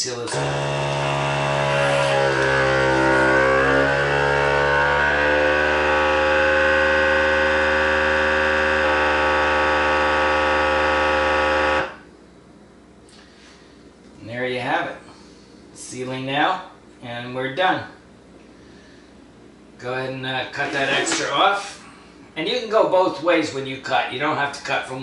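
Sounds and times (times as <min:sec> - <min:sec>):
vacuum sealer pump humming: 0:00.0 - 0:14.2.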